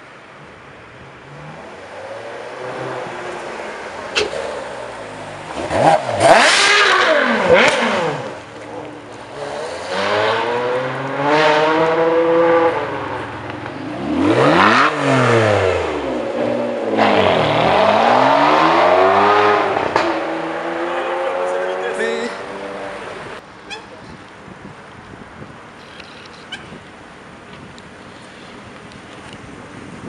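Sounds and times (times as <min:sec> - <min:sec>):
car engine accelerating hard: 0:04.2 - 0:23.4.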